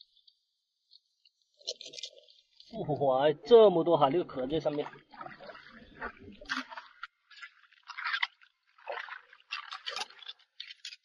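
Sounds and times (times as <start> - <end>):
small water splashes: 3.6 - 11.0
metal tongs scraping wet stones: 9.5 - 11.0.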